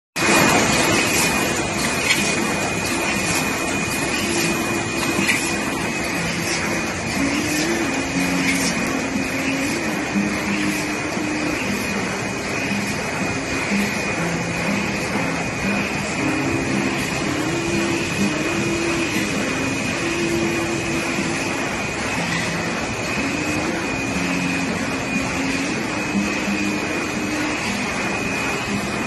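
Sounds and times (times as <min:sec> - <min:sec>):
high mechanical whine: 0:00.2 - 0:29.0
printing press running: 0:00.2 - 0:29.0.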